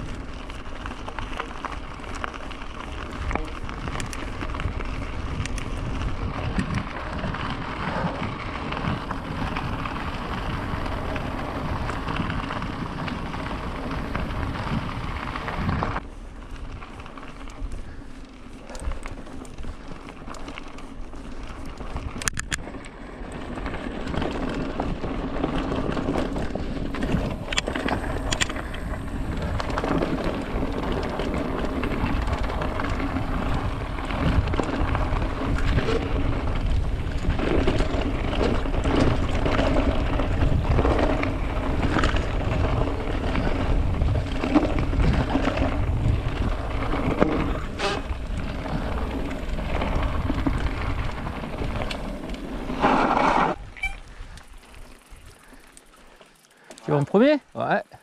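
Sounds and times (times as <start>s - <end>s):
tyres rumbling over gravel: 0.0s - 58.0s
wind on microphone: 2.9s - 16.0s, 25.0s - 54.4s
bike knocking on stones: 23.6s - 57.3s.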